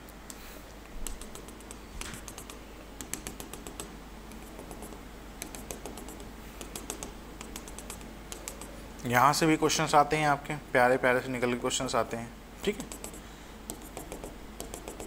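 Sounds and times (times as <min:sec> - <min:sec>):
pen tip tapping on touchscreen: 0:01.0 - 0:08.7, 0:12.9 - 0:15.0.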